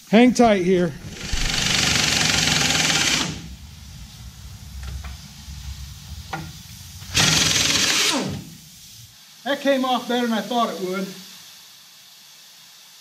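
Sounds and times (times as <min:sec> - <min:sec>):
pneumatic impact wrench hammering: 0:01.0 - 0:03.5, 0:07.2 - 0:08.7.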